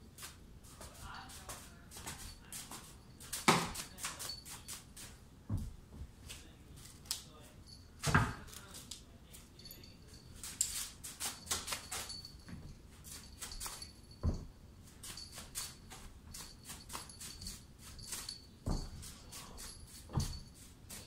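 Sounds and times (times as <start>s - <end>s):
soft thump: 5.5s - 6.1s, 14.2s - 14.5s.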